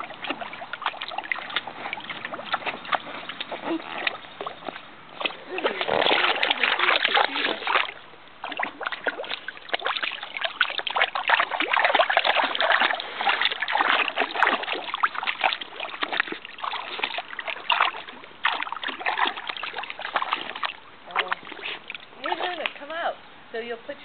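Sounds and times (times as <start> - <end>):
water splashing in a pool: 0.0 - 23.2.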